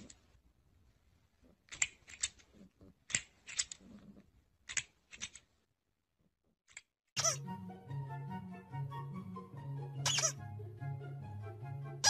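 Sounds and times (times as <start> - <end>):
plastic toy clicks: 1.7 - 2.5, 3.1 - 3.9, 4.6 - 5.5.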